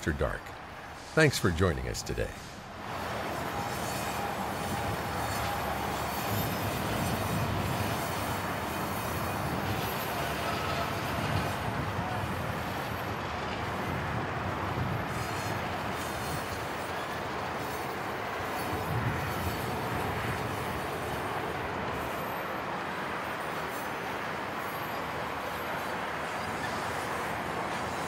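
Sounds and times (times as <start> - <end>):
rail car wheels rumbling: 0.0 - 28.0
faint wheel squeal: 3.3 - 11.6, 23.3 - 28.0.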